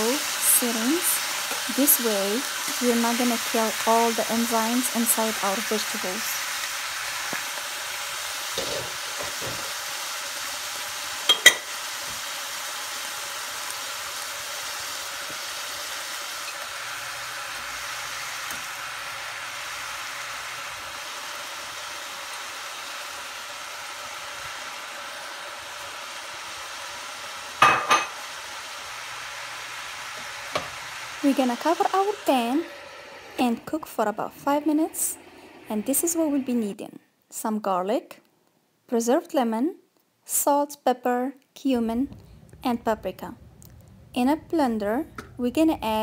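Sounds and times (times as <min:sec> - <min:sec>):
greens sizzling in a pan: 0:00.0 - 0:36.8.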